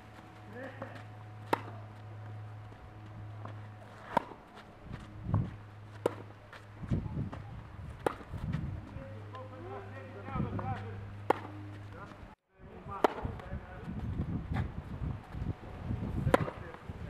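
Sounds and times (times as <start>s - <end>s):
footsteps scuffing on clay: 0.0s - 9.6s
tennis ball hit by racket: 0.9s - 2.1s, 3.4s - 4.6s, 5.9s - 6.4s, 8.0s - 8.5s, 11.2s - 11.6s, 16.3s - 16.8s.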